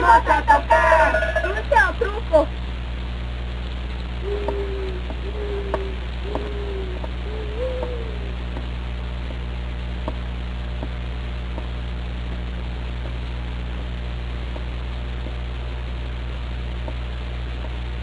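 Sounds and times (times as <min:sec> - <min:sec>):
film soundtrack hiss: 0:00.0 - 0:18.0
low electrical hum: 0:00.0 - 0:18.0
faint ticks: 0:03.6 - 0:13.2, 0:16.8 - 0:17.8.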